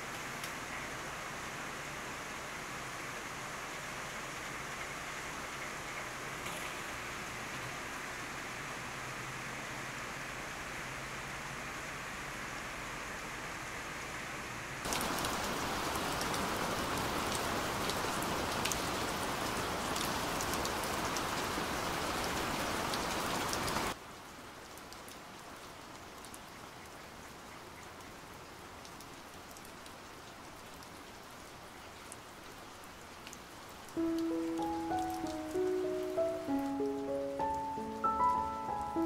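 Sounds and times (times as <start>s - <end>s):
heavy rain falling: 0.0s - 27.2s, 28.0s - 39.0s
raindrops pattering: 14.8s - 39.0s.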